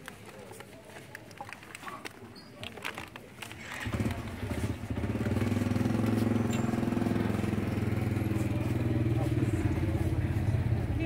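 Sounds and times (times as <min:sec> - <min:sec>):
vehicle engine running: 0:03.7 - 0:11.0.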